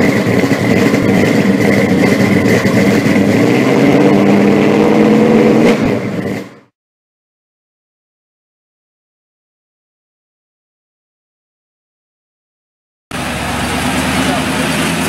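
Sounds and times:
car engine running: 0:00.0 - 0:06.7, 0:13.1 - 0:15.0.

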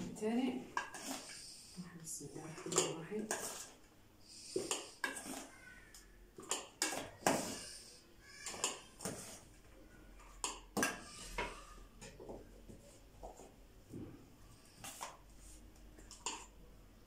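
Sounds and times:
metal spoon scraping in steel bowl: 0:00.8 - 0:01.4, 0:02.6 - 0:03.8, 0:04.5 - 0:05.5.

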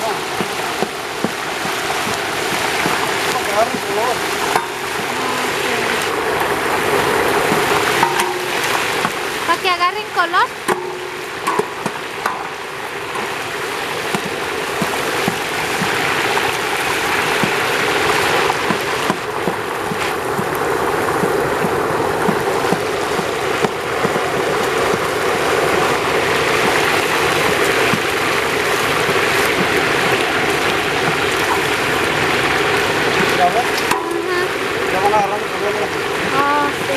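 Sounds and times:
paddle stirring: 0:00.0 - 0:09.8, 0:10.6 - 0:36.9
meat sizzling in hot lard: 0:00.0 - 0:36.9
knocks against metal pot: 0:00.4 - 0:05.2, 0:07.4 - 0:09.4, 0:10.6 - 0:16.7, 0:17.4 - 0:17.7, 0:18.4 - 0:20.6, 0:21.2 - 0:25.1, 0:26.0 - 0:31.8, 0:32.5 - 0:34.3.

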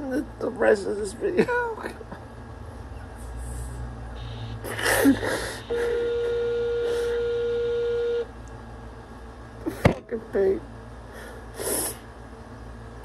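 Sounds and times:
steady electronic beep: 0:04.2 - 0:04.7, 0:05.5 - 0:08.2
person sniffling while crying: 0:04.6 - 0:06.2, 0:06.8 - 0:07.3, 0:11.1 - 0:12.1.

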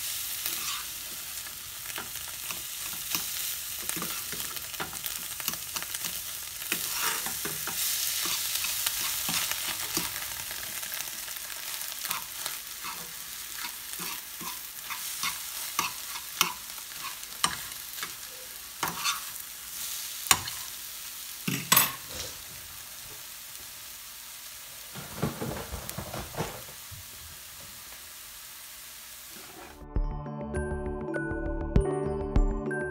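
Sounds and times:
eggs sizzling in frying pan: 0:00.0 - 0:29.8
fork stirring and scraping: 0:00.5 - 0:00.9, 0:01.9 - 0:10.2, 0:12.0 - 0:19.4
fork tapping against pan: 0:13.6 - 0:18.2.

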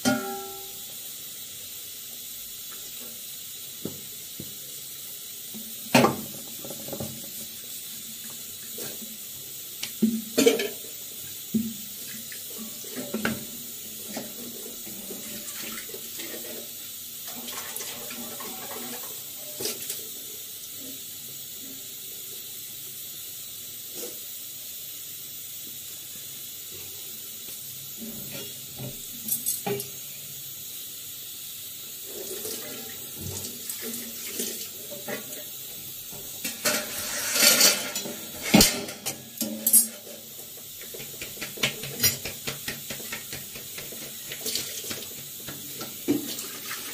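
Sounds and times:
gas burner hissing: 0:00.0 - 0:46.9
utensils knocking and clattering: 0:36.2 - 0:46.4.

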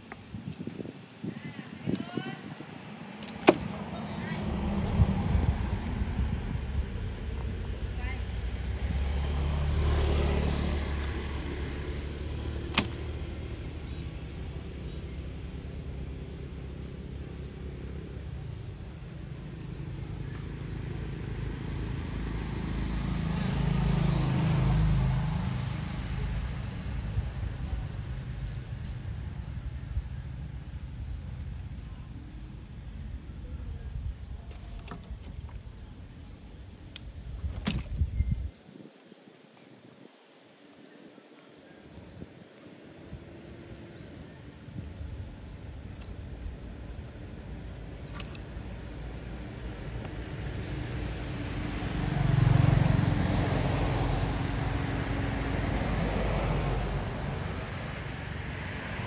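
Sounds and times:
vehicle engine rumbling: 0:00.0 - 0:38.6, 0:42.8 - 0:59.0
sharp clicks: 0:12.7 - 0:13.2.

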